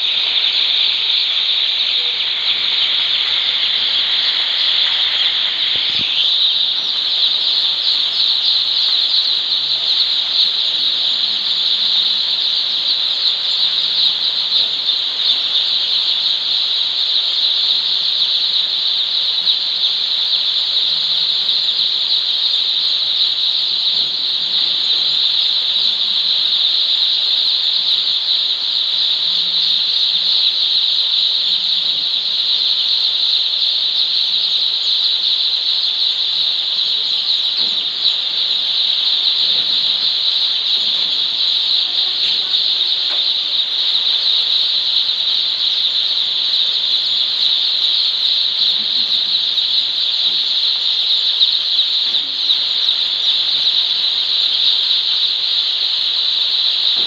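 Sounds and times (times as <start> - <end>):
chicks peeping: 37.1 - 43.2.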